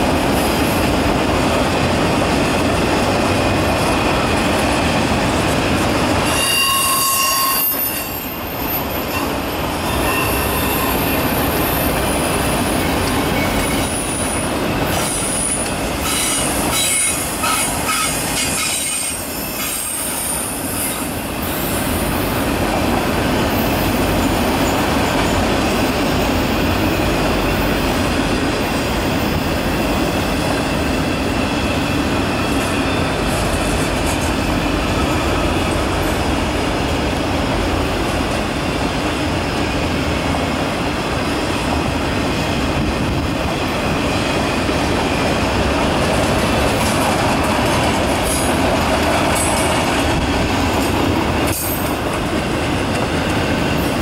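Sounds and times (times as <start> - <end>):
train wheels rumbling on rail: 0.0 - 54.0
high-pitched wheel squeal: 6.2 - 11.9.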